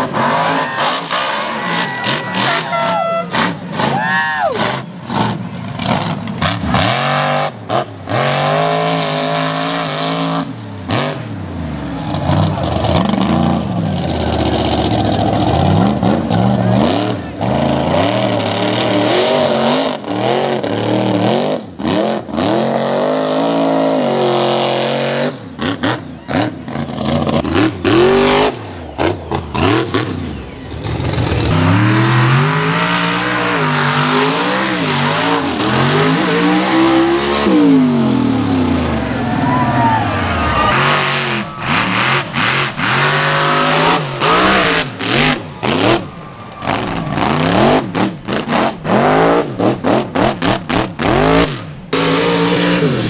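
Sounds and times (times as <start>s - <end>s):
truck engines revving hard: 0.0s - 53.0s.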